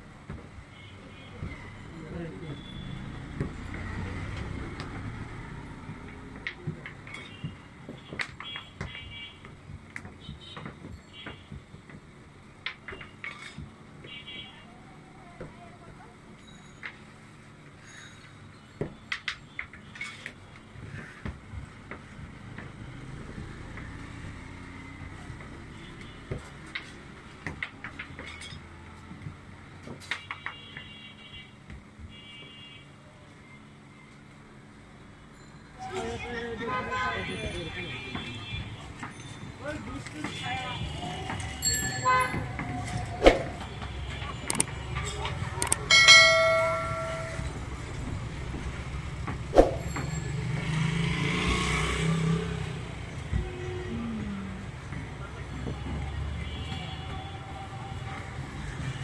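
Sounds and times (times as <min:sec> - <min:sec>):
road traffic rumble: 0:00.0 - 0:59.0
vehicle passing: 0:45.3 - 0:55.4.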